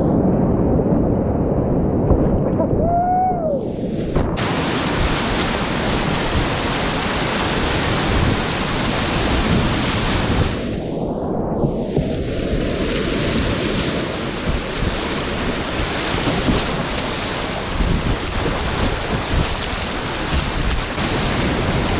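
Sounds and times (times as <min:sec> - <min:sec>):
whitewater rapids rushing: 0:04.4 - 0:10.8, 0:12.3 - 0:21.9.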